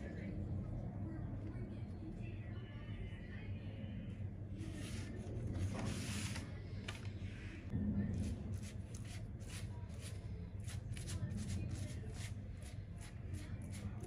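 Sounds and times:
pastry brush soft scrapes: 4.5 - 14.0
papery rustle of flatbreads: 4.7 - 7.5.

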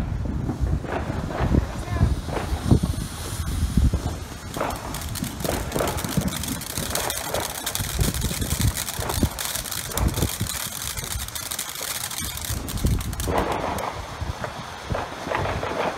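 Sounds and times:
firework fountain hissing and crackling: 0.0 - 15.9
low rumbles: 0.7 - 14.4.

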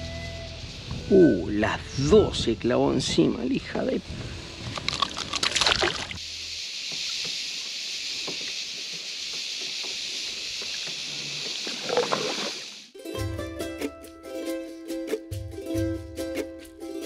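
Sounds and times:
steady high hiss: 0.0 - 4.7, 6.1 - 13.0
water splashing against kayak: 4.6 - 6.2, 10.6 - 12.8
faint water lapping: 4.8 - 6.2.

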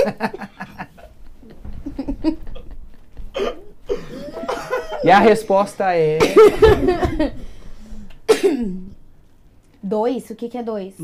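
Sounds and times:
woman giggling: 0.0 - 3.3, 3.9 - 5.3, 6.2 - 7.4.

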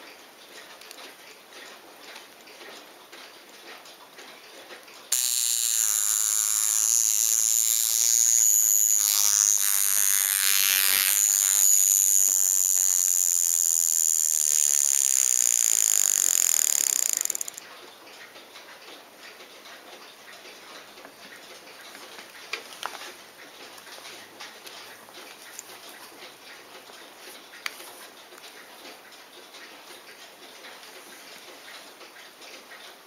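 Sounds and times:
wristwatch alarm buzzing: 5.1 - 17.6.

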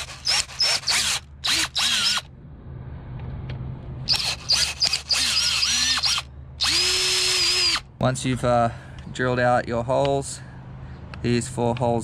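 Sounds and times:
power drill motor whining: 0.0 - 2.3, 4.1 - 7.9.

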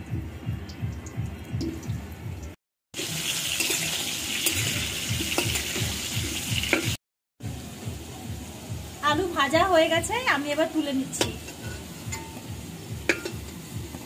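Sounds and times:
potatoes sizzling in oil: 3.0 - 14.0
metal spatula scraping pan: 11.1 - 12.5.

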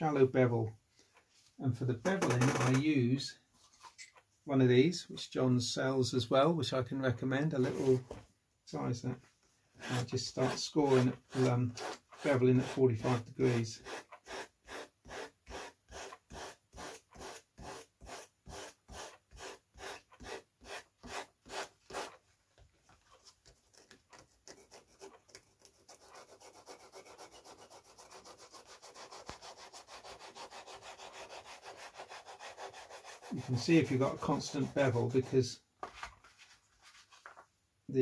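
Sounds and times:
sanding bar rubbing foam: 9.8 - 22.2, 24.4 - 35.5.

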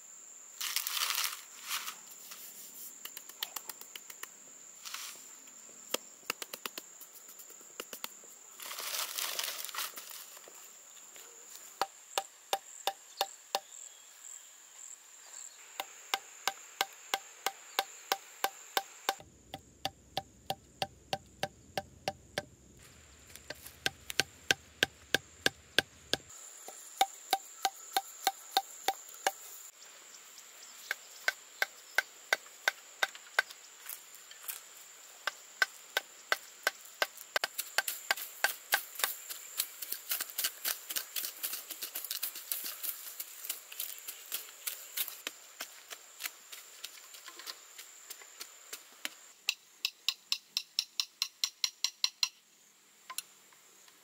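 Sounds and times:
high insect buzz: 0.0 - 50.8
hand tool chopping bamboo: 23.3 - 26.3.

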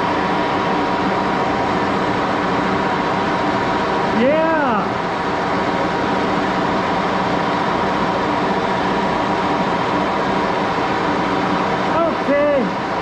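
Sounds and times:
lathe gear drive hum: 0.0 - 13.0.

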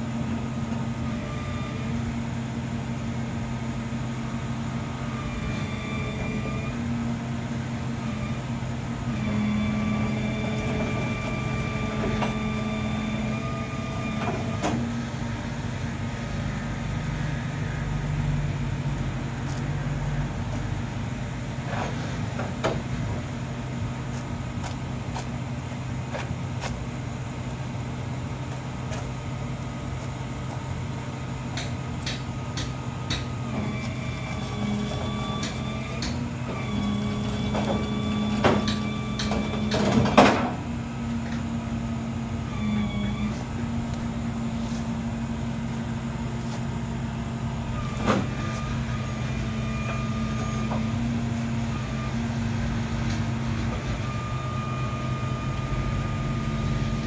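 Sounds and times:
vehicle engine humming: 0.0 - 57.0.

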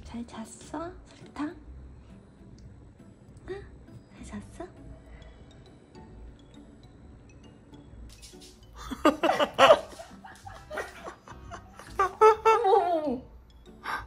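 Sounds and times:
quiet background music: 0.0 - 14.0
laughter in short bursts: 8.8 - 12.9.

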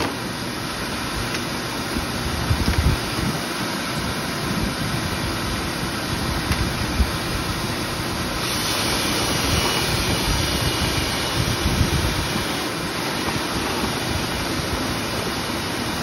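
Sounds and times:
vacuum rushing air: 0.0 - 16.0
bright hiss: 5.4 - 16.0.

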